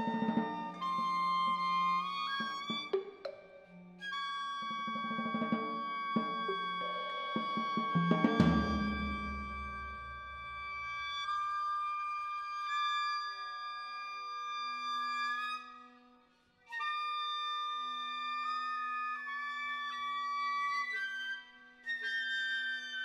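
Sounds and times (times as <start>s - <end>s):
clarinet sustained notes: 0.0s - 3.0s, 4.0s - 16.0s
flute sustained notes: 0.0s - 3.4s, 4.0s - 16.0s.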